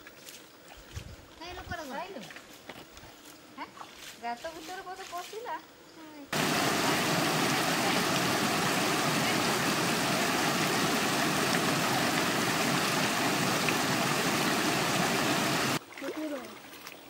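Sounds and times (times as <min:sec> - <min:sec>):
stream flowing over stones: 0:06.4 - 0:17.0.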